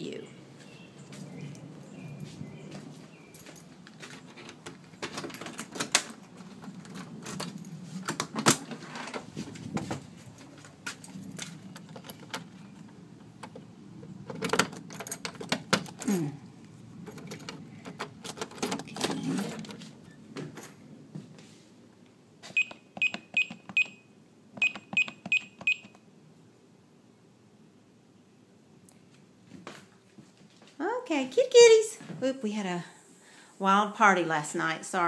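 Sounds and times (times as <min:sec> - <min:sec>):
door handling clicks and rustling: 0:03.4 - 0:16.1, 0:17.0 - 0:20.8
security keypad beeps: 0:22.6 - 0:26.0.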